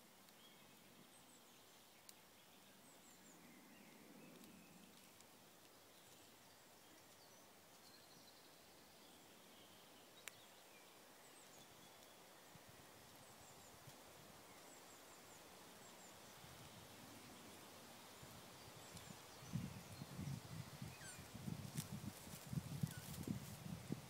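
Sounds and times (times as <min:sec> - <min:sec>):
distant bird chirps: 0:20.3 - 0:21.4.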